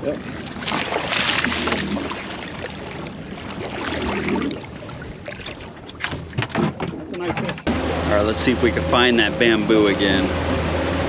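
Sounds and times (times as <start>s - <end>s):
water splashing and churning: 0.0s - 11.0s
fish thrashing at the surface: 0.2s - 6.8s.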